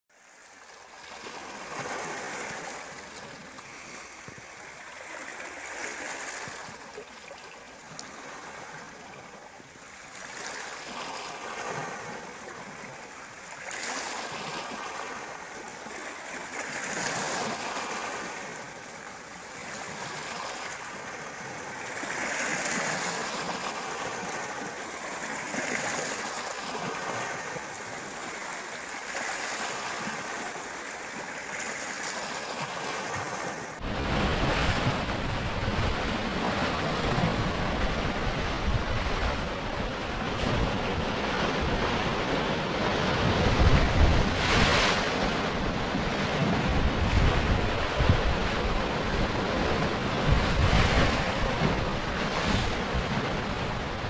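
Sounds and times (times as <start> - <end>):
waves washing over pebbles: 19.5 - 54.0.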